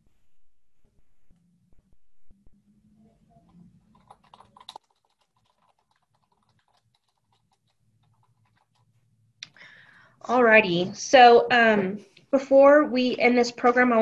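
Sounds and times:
typing on computer keyboard: 0:03.5 - 0:09.6.

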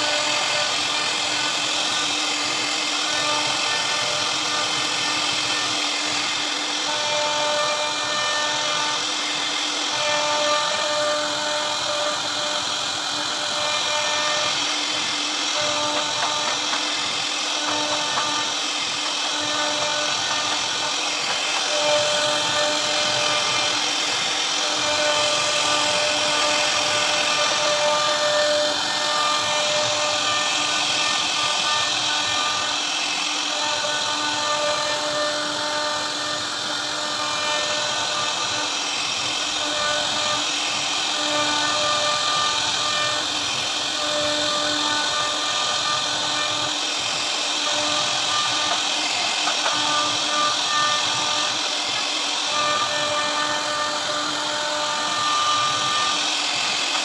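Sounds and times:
router spindle cutting wood: 0:00.0 - 0:57.0.

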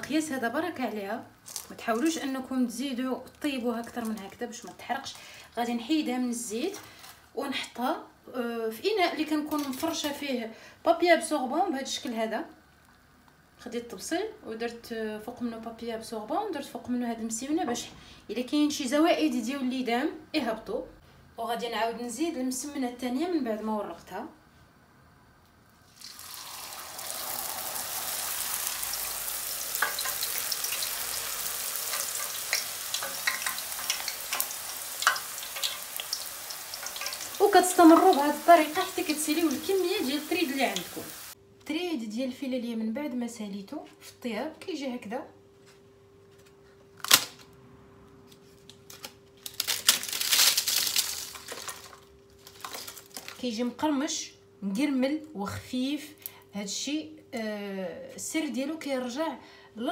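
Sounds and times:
oil crackling and popping: 0:01.4 - 0:02.0, 0:25.9 - 0:41.4, 0:49.0 - 0:53.4
dough sizzling in hot oil: 0:25.8 - 0:41.4
crackling crunch: 0:48.6 - 0:53.4
fried dough crumbled by hand: 0:48.7 - 0:53.4.

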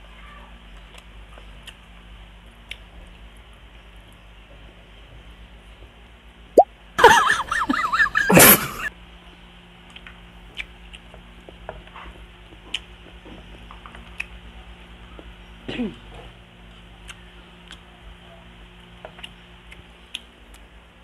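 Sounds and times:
mouth clicks and smacks chewing: 0:00.8 - 0:01.9, 0:02.6 - 0:02.9, 0:09.9 - 0:11.6.

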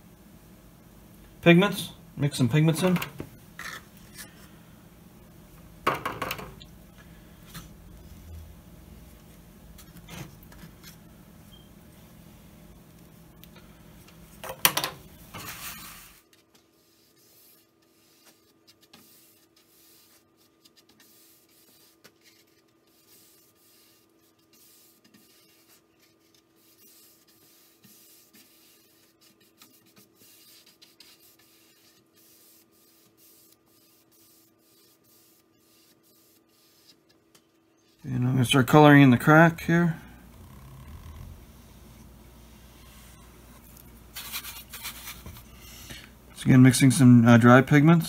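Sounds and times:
faint hum: 0:00.0 - 0:48.0
brushing on wood: 0:15.5 - 0:37.2.

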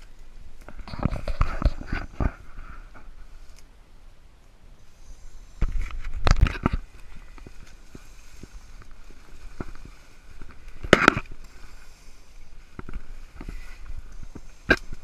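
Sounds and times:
brush rustling and crackling: 0:00.0 - 0:15.0
footsteps in undergrowth: 0:05.4 - 0:15.0.

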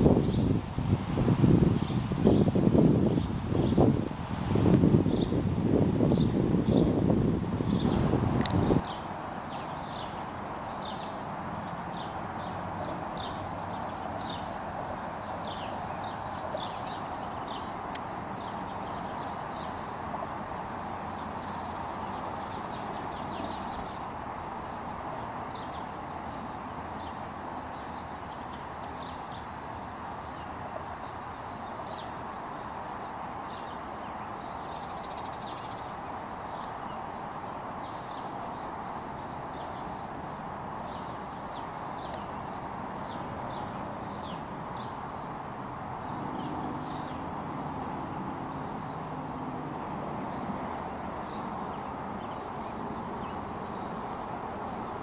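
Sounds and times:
flowing creek water: 0:00.0 - 0:55.0
songbirds chirping: 0:00.0 - 0:55.0.

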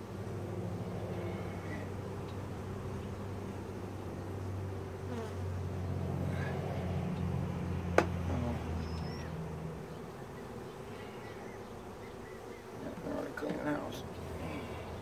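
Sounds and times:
honeybees buzzing: 0:00.0 - 0:15.0.

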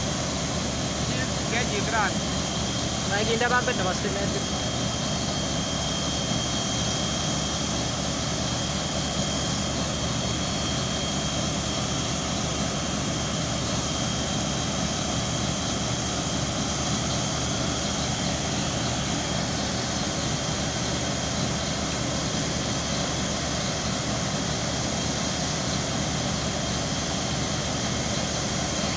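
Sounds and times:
drilling rig engine running: 0:00.0 - 0:28.9
thin high whine: 0:00.0 - 0:28.9.

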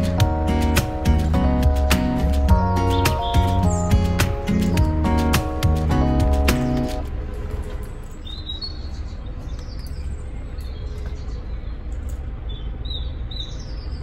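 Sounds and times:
small birds chirping: 0:00.0 - 0:06.7, 0:08.0 - 0:14.0
background music: 0:00.0 - 0:07.8.

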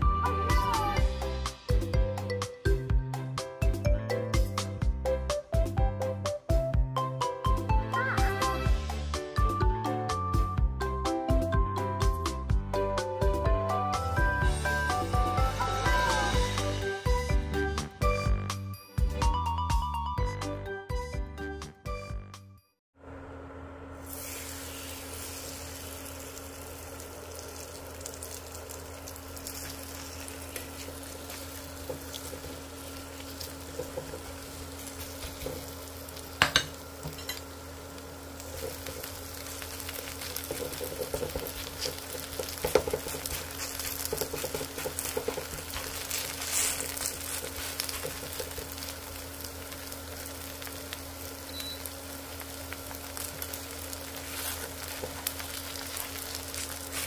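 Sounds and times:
batter frying with crackling sizzle: 0:24.0 - 0:57.0
oil sizzling in a frying pan: 0:24.0 - 0:57.0.

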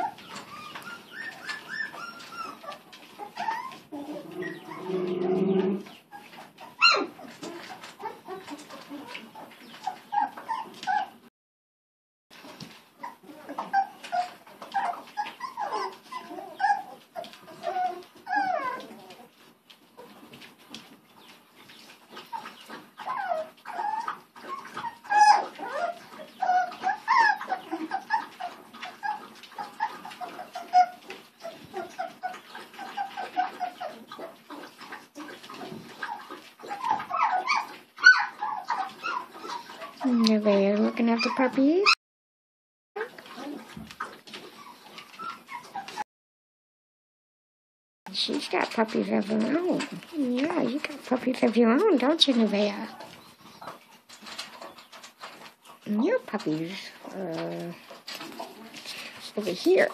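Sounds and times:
puppy low cry: 0:00.0 - 0:11.2, 0:13.0 - 0:19.3, 0:22.3 - 0:40.2
puppies whimpering and yipping: 0:00.0 - 0:11.3, 0:12.4 - 0:42.0, 0:43.0 - 0:46.1, 0:48.2 - 0:59.9
puppy sharp yelp: 0:06.7 - 0:07.2, 0:36.1 - 0:39.6.

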